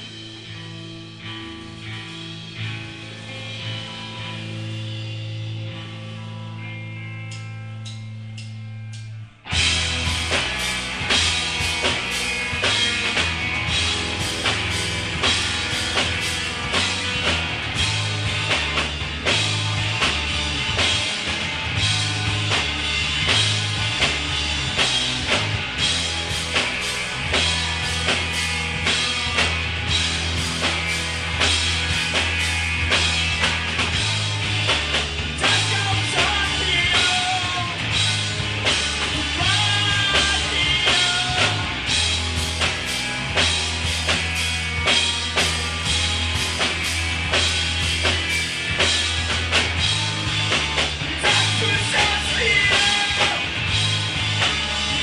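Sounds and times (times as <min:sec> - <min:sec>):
bass line: 0:00.0 - 0:55.0
electric guitar: 0:00.0 - 0:55.0
drum kit beat: 0:07.0 - 0:55.0
person singing: 0:35.4 - 0:37.9, 0:39.1 - 0:41.8, 0:51.1 - 0:53.6.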